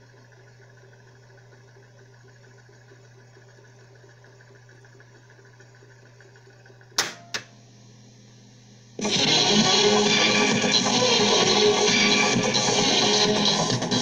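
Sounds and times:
cassette deck whirring: 0:00.0 - 0:14.0.

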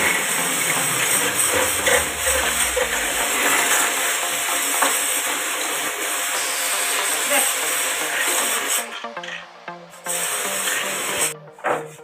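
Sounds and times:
pressure washer spraying plastic fins: 0:10.1 - 0:11.3.

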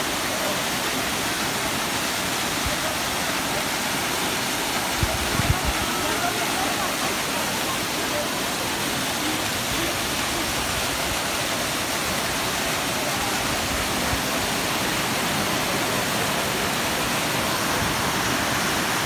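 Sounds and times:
waterfall pouring over rocks: 0:00.0 - 0:19.0.

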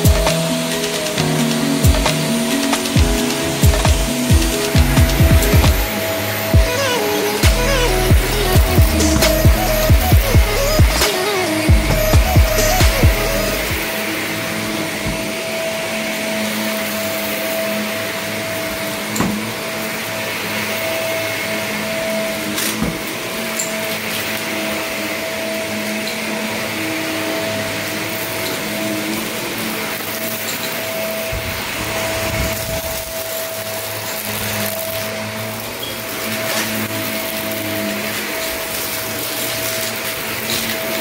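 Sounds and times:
vacuum cleaner running on carpet: 0:00.0 - 0:41.0.

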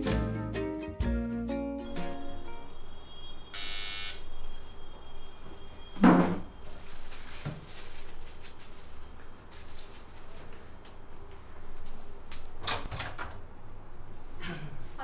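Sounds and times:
electric doorbell buzzing: 0:03.5 - 0:04.3.

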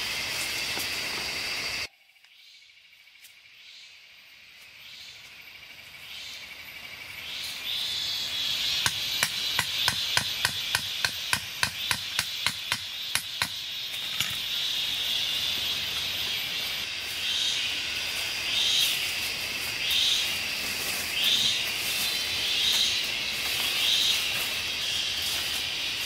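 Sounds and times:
high insect buzz: 0:00.0 - 0:26.0
machete chopping wood: 0:08.9 - 0:13.6.

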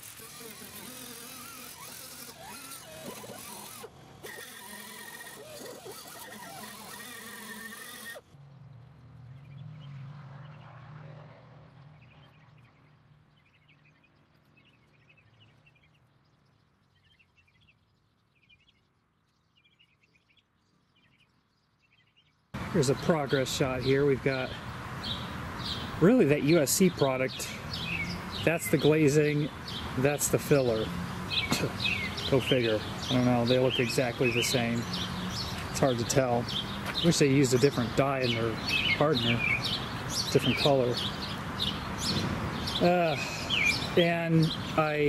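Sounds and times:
air-powered wire wheel buzzing on metal: 0:00.0 - 0:08.3
faint outdoor chirping: 0:00.0 - 0:45.0.

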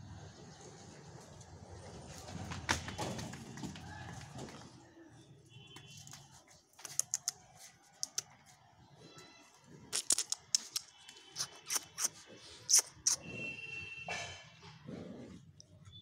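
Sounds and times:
sharp clicks and taps: 0:06.8 - 0:07.4.

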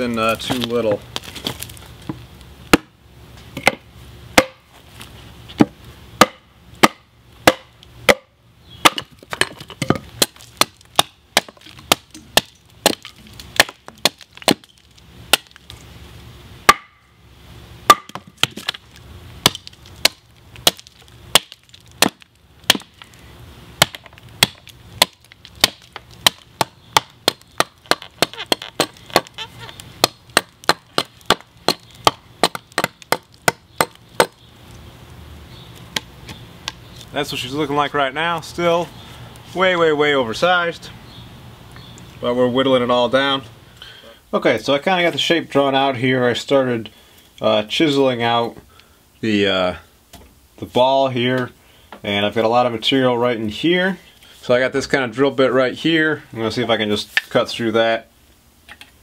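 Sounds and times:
axe chopping into a log: 0:02.7 - 0:03.0, 0:04.4 - 0:04.7, 0:05.6 - 0:15.6, 0:16.7 - 0:17.0, 0:17.9 - 0:18.8, 0:19.4 - 0:23.0, 0:23.8 - 0:29.4, 0:30.0 - 0:34.4.

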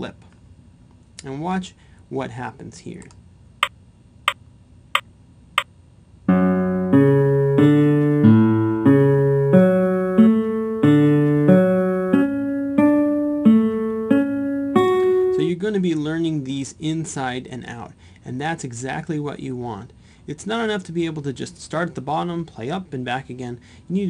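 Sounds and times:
synthesized arpeggio notes: 0:06.3 - 0:15.5.

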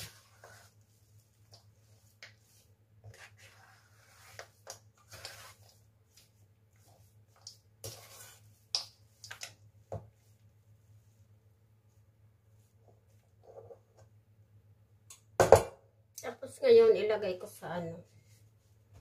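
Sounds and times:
metal spoon scraping bowl: 0:07.8 - 0:08.4.

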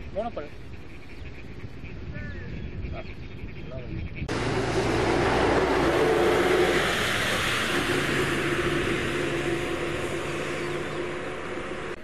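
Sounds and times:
engine running: 0:04.3 - 0:12.0.

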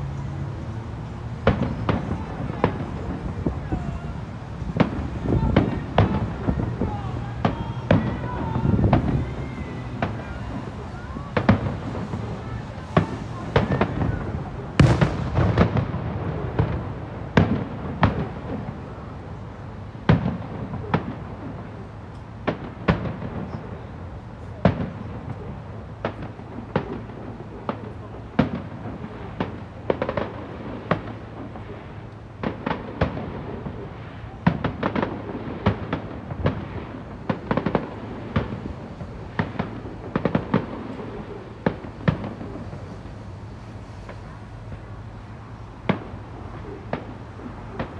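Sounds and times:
firework shells bursting: 0:14.8 - 0:16.0.

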